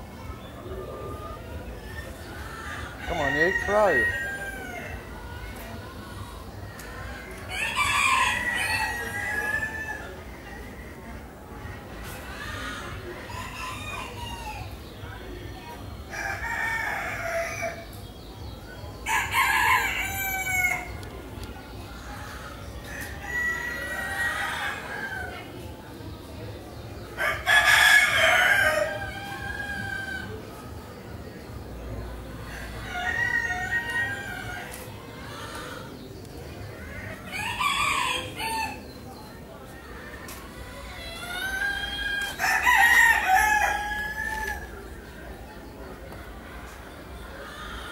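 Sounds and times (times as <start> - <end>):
roosters crowing: 0.2 - 5.6, 7.1 - 10.7, 12.0 - 15.2, 16.1 - 17.9, 19.0 - 21.1, 22.4 - 25.6, 27.0 - 30.5, 32.3 - 39.0, 40.7 - 45.3.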